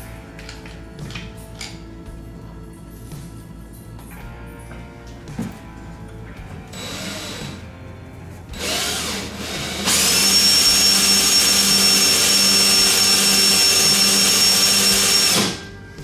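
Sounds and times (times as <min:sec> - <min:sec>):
cordless drill whining: 0:06.7 - 0:07.6, 0:08.6 - 0:15.8.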